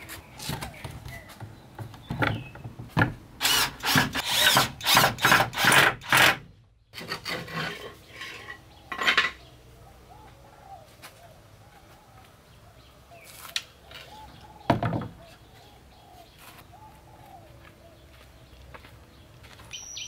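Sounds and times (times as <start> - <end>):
hand tool working wood: 7.0 - 8.6.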